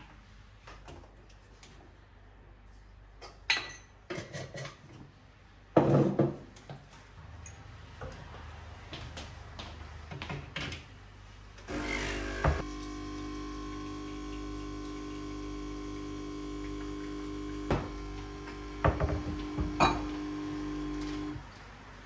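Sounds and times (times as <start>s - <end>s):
espresso machine pump buzzing: 11.7s - 21.4s.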